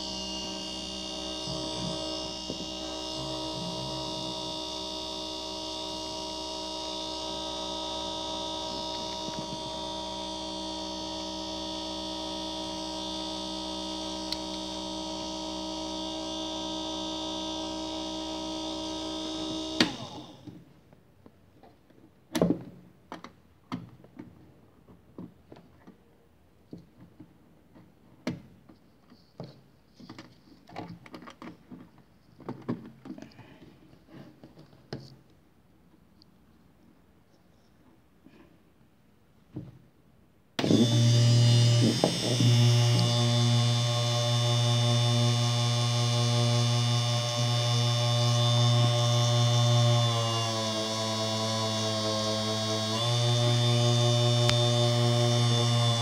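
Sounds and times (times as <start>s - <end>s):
electric motor whining: 0.0s - 20.5s, 40.6s - 56.0s
motor switch click: 14.2s - 14.7s.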